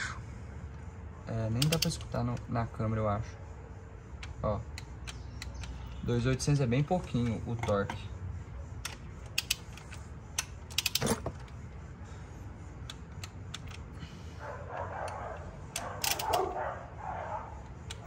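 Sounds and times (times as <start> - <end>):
torque wrench clicks: 1.5 - 2.4, 8.8 - 11.2, 15.1 - 16.5.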